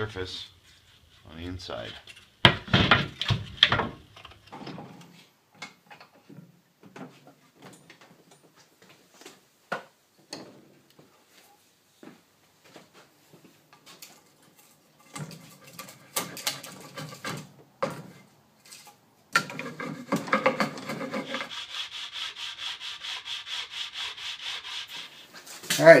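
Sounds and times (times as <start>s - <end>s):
sanding block rubbing on wood: 19.6s - 25.6s.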